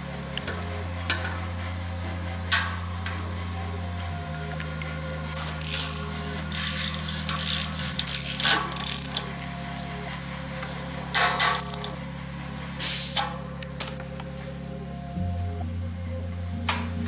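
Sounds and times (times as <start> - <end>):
steady low held tones: 0.0 - 17.0
mechanical ratcheting clicks: 5.5 - 9.2.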